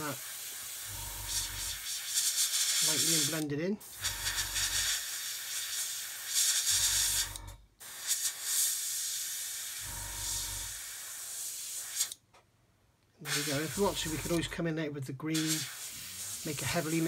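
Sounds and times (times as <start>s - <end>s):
airbrush hissing: 0.0s - 12.2s, 13.2s - 14.5s, 15.3s - 17.0s.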